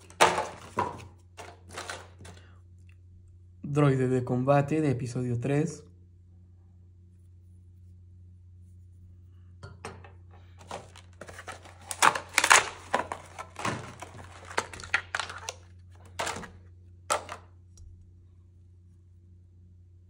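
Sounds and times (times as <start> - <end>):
packaging crinkling and rustling: 0.0 - 2.5, 10.6 - 17.4
steady low hum: 0.0 - 20.0.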